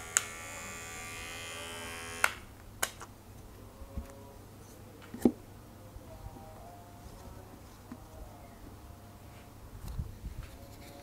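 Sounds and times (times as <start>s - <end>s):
hair clipper motor buzzing: 0.0s - 2.4s.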